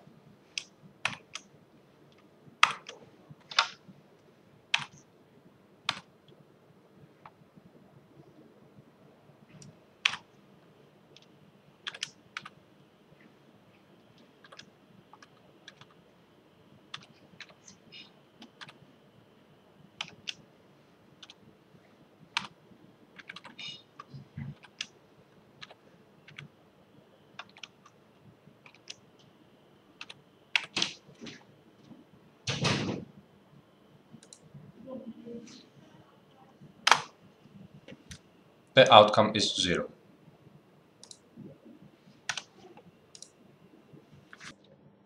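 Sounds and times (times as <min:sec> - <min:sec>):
keyboard typing: 0:00.5 - 0:01.5, 0:02.1 - 0:03.8, 0:04.7 - 0:05.1, 0:05.9 - 0:06.1, 0:09.6 - 0:10.3, 0:11.1 - 0:12.6, 0:14.2 - 0:16.0, 0:16.9 - 0:18.8, 0:20.0 - 0:20.4, 0:21.2 - 0:21.4, 0:22.3 - 0:22.6, 0:23.2 - 0:25.0, 0:25.6 - 0:26.5, 0:27.3 - 0:28.0, 0:28.6 - 0:29.0, 0:30.0 - 0:31.4, 0:34.2 - 0:34.5, 0:36.8 - 0:37.2, 0:41.0 - 0:41.6, 0:42.3 - 0:43.4.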